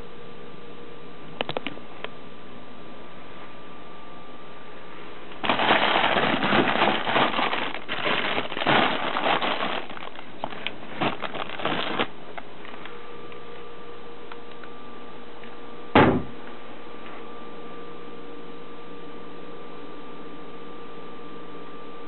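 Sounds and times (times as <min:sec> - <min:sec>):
plastic packaging crinkling: 0:05.3 - 0:13.0.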